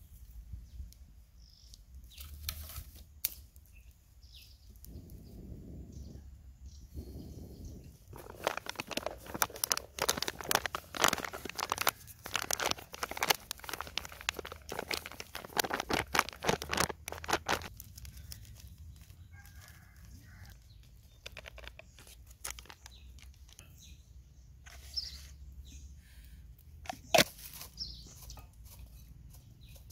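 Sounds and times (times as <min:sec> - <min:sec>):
flour packet crinkling: 0:08.1 - 0:23.7, 0:26.8 - 0:27.8
faint handling sounds: 0:08.1 - 0:23.9.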